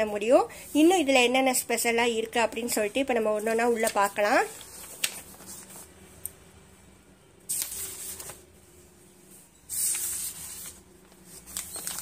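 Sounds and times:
book pages turning: 0:03.4 - 0:05.9, 0:07.5 - 0:08.5, 0:09.7 - 0:12.0.

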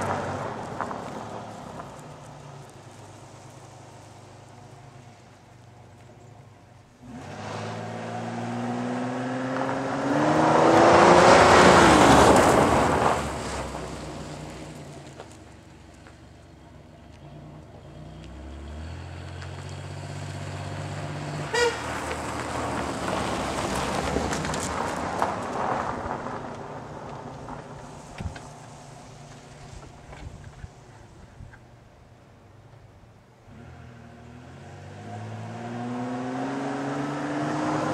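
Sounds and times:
car engine revving: 0:07.0 - 0:15.1, 0:33.4 - 0:37.9
sharp tyre chirp: 0:17.2 - 0:23.0
tyres spinning on gravel: 0:21.8 - 0:30.8.

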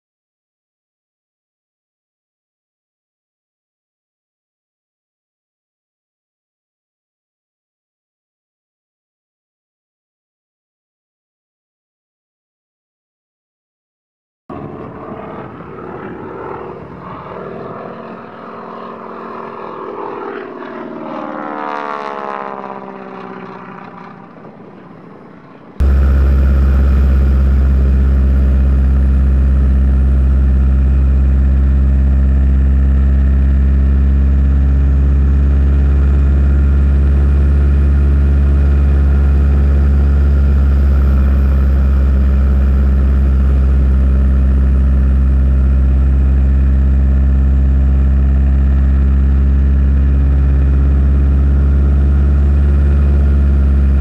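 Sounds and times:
engine running at close range: 0:14.5 - 0:54.0
model aircraft engine flying past: 0:14.5 - 0:54.0.

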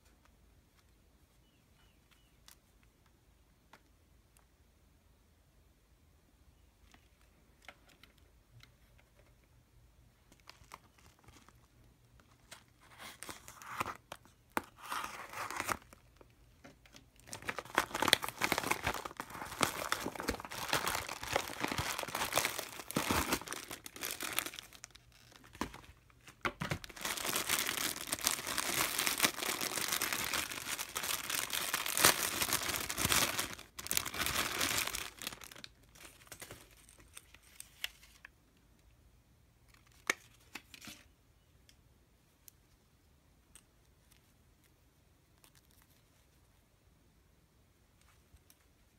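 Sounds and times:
plastic packaging crinkling: 0:10.3 - 0:38.3.

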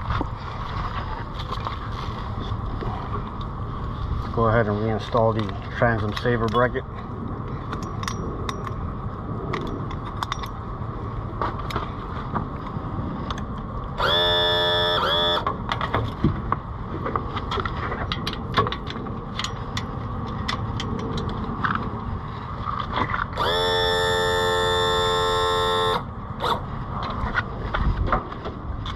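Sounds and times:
loud horn-like tone: 0:14.0 - 0:15.4, 0:23.4 - 0:26.0.

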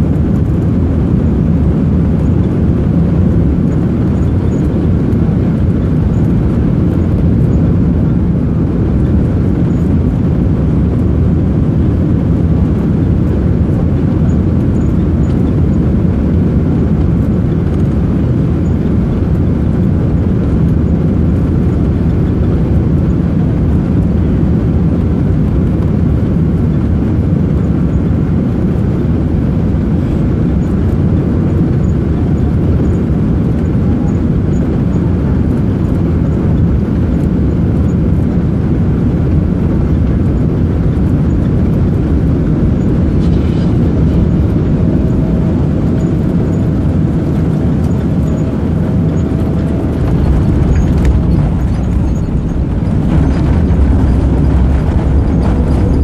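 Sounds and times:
airplane engines rumbling: 0:00.0 - 0:56.0
faint steady whine: 0:00.0 - 0:56.0
air rushing: 0:48.3 - 0:56.0.

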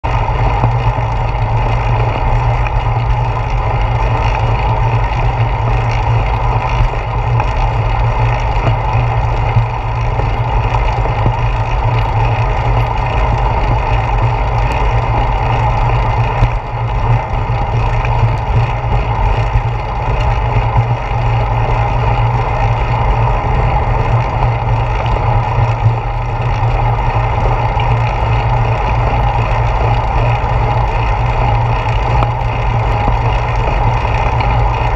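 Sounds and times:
bicycle road rumble: 0:00.0 - 0:34.9.

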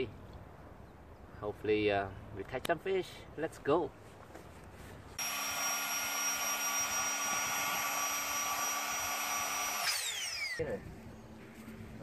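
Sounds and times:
electric air pump whining: 0:05.2 - 0:10.6.

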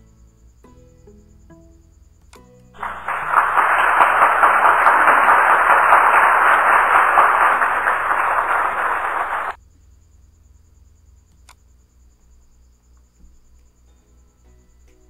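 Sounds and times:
faint steady hum: 0:00.0 - 0:15.0
faint click: 0:11.3 - 0:11.6.

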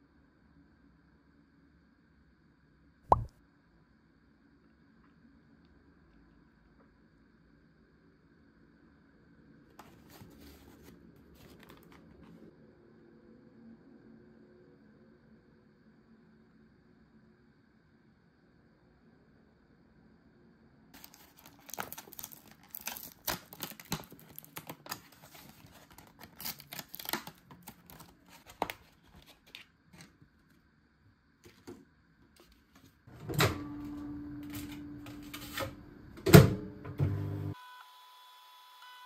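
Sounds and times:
plastic packaging crackling: 0:21.0 - 0:30.1
microwave oven clunk: 0:33.1 - 0:37.5
microwave oven humming: 0:33.1 - 0:39.0.

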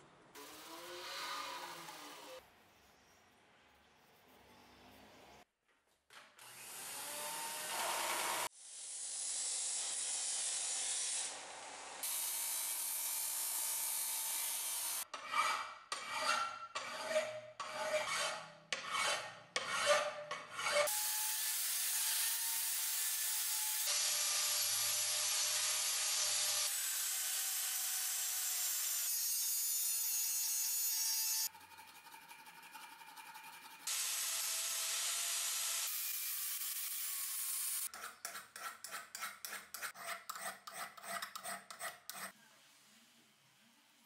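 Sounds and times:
angle grinder on steel: 0:00.4 - 0:02.4, 0:06.6 - 0:42.4
power sander grinding metal: 0:06.7 - 0:08.5
scraping strokes on metal: 0:15.0 - 0:21.0, 0:37.7 - 0:42.4.

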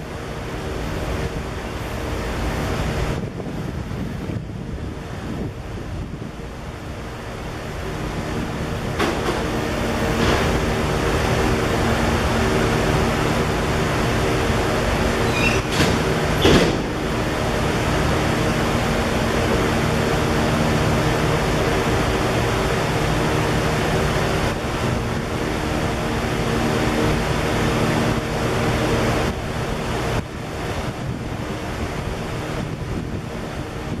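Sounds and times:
locomotive engine droning: 0:00.0 - 0:34.0
train rumbling: 0:00.0 - 0:34.0.

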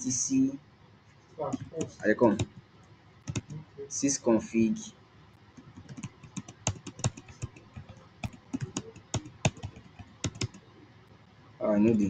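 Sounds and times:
keyboard typing clicks: 0:03.2 - 0:03.6, 0:05.6 - 0:10.6.

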